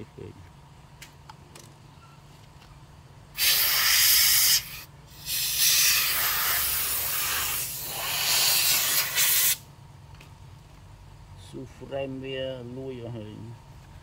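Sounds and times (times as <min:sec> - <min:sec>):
jet of air hissing: 0:03.4 - 0:09.6.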